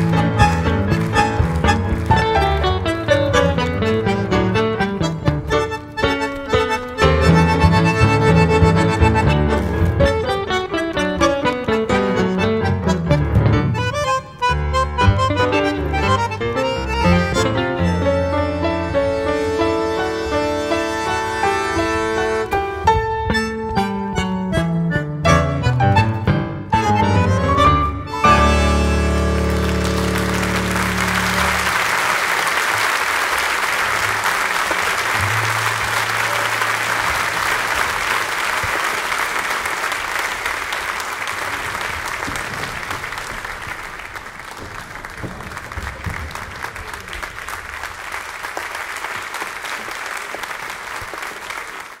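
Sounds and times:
audience applauding: 0.0s - 11.6s, 28.1s - 52.0s
piano bandoneon and guitar trio: 0.0s - 32.8s, 33.9s - 38.7s.

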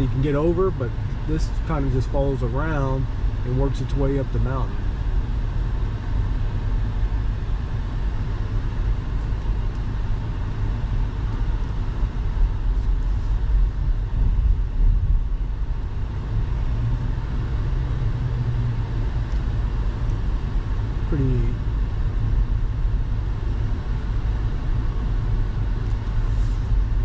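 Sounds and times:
car engine and tyre rumble: 0.0s - 27.0s.

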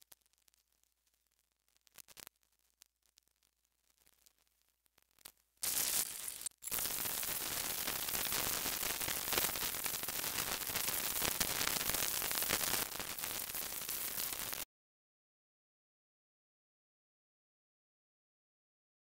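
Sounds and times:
static hiss: 0.0s - 14.6s.

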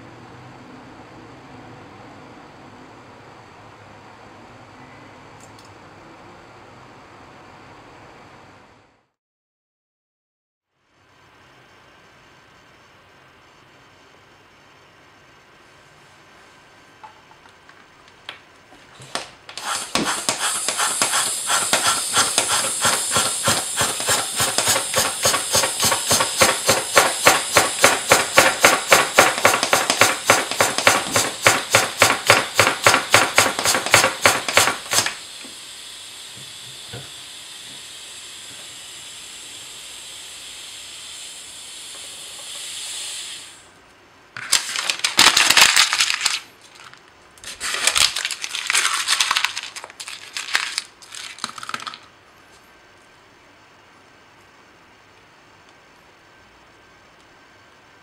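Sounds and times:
rhythmic puffs of hissing air: 19.6s - 43.8s
steady air hiss: 19.6s - 43.8s.

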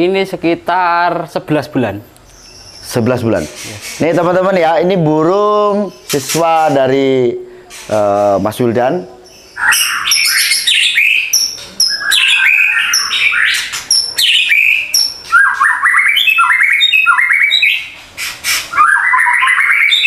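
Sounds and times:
bird rapid rattling trills: 9.4s - 20.0s
bird singing whistled song: 9.4s - 20.0s.

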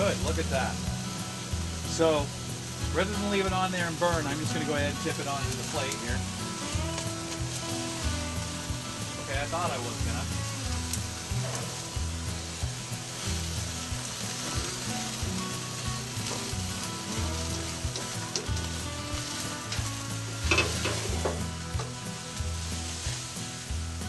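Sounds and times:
fire crackling: 0.0s - 24.0s
grease sizzling: 0.0s - 24.0s.

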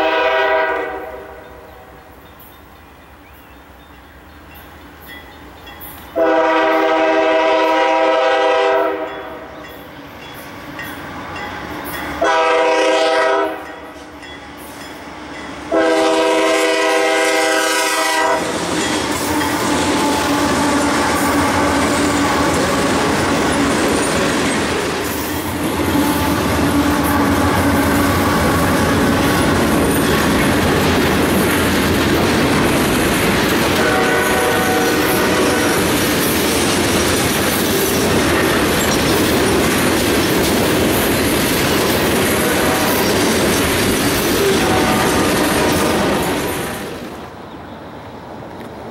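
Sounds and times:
locomotive air horn blasts: 0.0s - 1.8s, 6.2s - 9.4s, 12.2s - 13.8s, 15.7s - 18.5s, 19.1s - 23.4s, 25.7s - 29.3s, 33.8s - 35.9s, 44.4s - 46.3s
clickety-clack of rail cars: 0.0s - 48.9s
train wheel noise: 0.0s - 48.9s.

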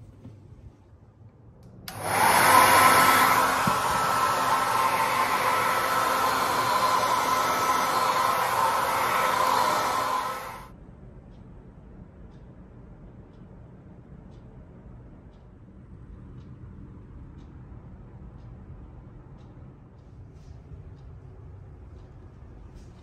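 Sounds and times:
hair dryer blowing: 1.9s - 10.7s.

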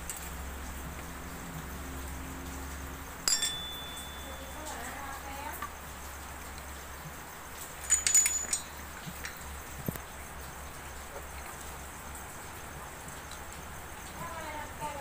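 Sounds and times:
metal parts clinking: 3.3s - 4.9s, 7.7s - 10.0s.

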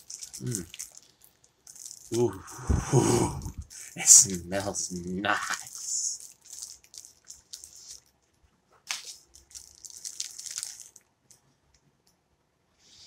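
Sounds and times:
plastic wrapper crinkling: 0.0s - 2.4s, 3.5s - 11.4s.

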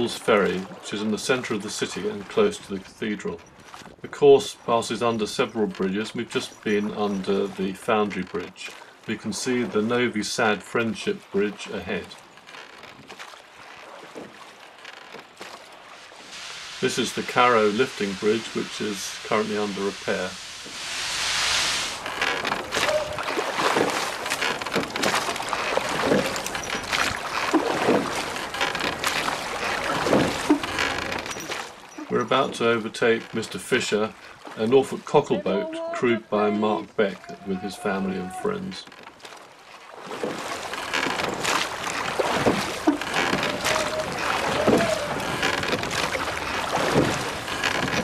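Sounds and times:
oars knocking in rowlocks: 0.0s - 20.2s, 21.9s - 34.6s, 36.8s - 48.0s
water splashing and rushing: 0.0s - 48.0s
wind noise: 16.3s - 24.0s
oars knocking in thole pins: 22.0s - 32.4s, 40.1s - 48.0s.

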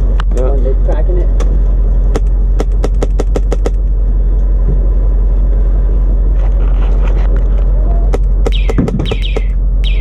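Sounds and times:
diesel engine low rumble: 0.0s - 10.0s
sharp clicks: 8.5s - 10.0s.

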